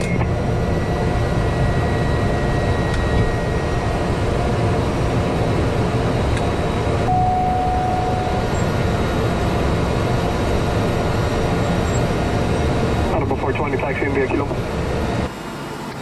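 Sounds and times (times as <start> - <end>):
turboprop engine and propeller: 0.0 - 16.0
thin steady tone: 7.1 - 8.7.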